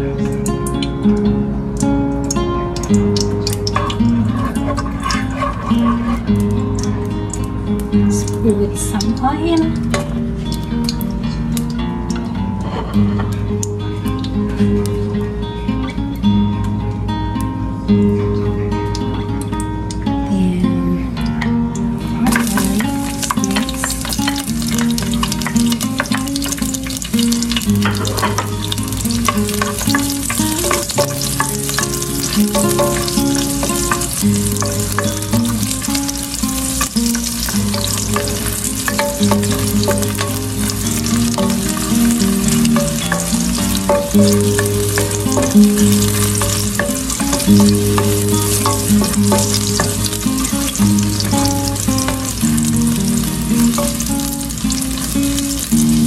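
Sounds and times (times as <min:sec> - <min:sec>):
garlic sizzling in hot oil: 0:00.0 - 0:15.0, 0:21.8 - 0:56.0
soft background music: 0:00.0 - 0:56.0
spatula stirring in pan: 0:03.6 - 0:06.9, 0:22.3 - 0:55.8.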